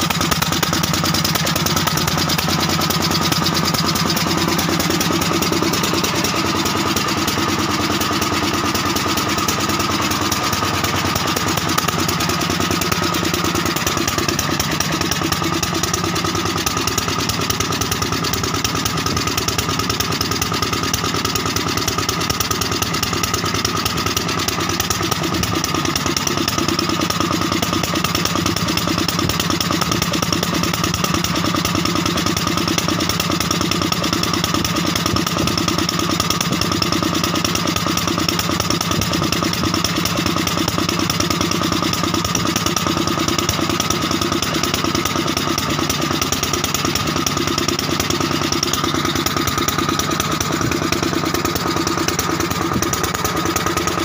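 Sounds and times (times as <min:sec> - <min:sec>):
generator engine running: 0:00.0 - 0:54.0.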